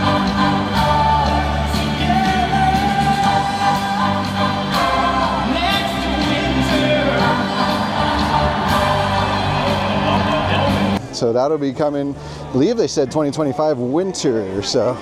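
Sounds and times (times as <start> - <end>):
person singing: 0.0 - 11.0
steady bass line: 0.0 - 11.0.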